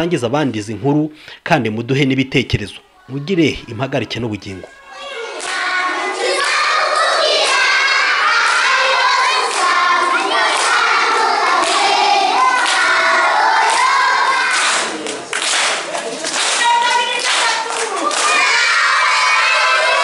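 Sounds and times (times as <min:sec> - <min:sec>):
children singing and shouting: 0:02.6 - 0:15.3, 0:16.4 - 0:20.0
hand-clapping: 0:09.4 - 0:09.8, 0:10.5 - 0:10.8, 0:11.6 - 0:11.9, 0:12.5 - 0:13.0, 0:13.6 - 0:18.6.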